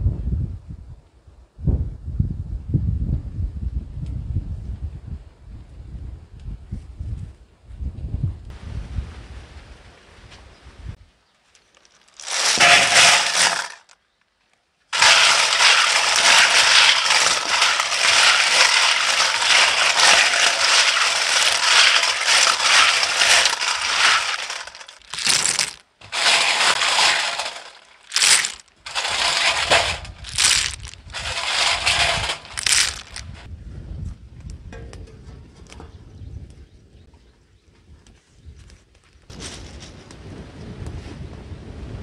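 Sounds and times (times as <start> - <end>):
snail shells clattering in metal bowl: 11.9 - 13.9, 15.0 - 33.5.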